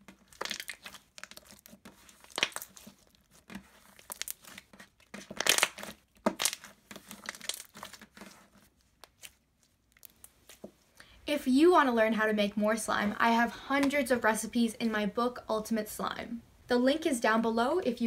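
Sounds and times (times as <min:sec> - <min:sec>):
slime squeezed by hand: 0:00.2 - 0:08.2.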